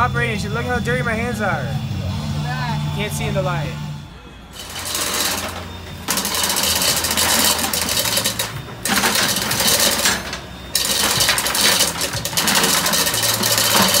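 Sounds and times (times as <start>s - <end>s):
low machine hum: 0.0s - 14.0s
machinery clattering: 4.5s - 14.0s.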